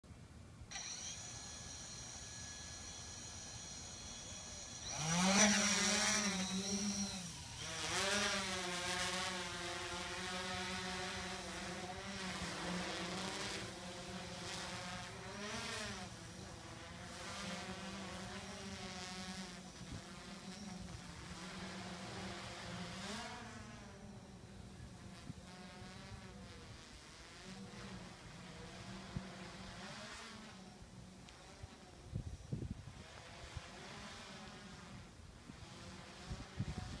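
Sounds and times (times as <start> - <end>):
drone motors buzzing: 0.7 - 37.0.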